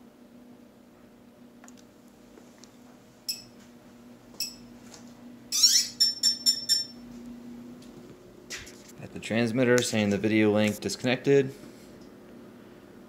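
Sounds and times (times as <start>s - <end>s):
drone power-up beeps: 5.5s - 7.0s
drone rising chirp: 5.5s - 7.1s.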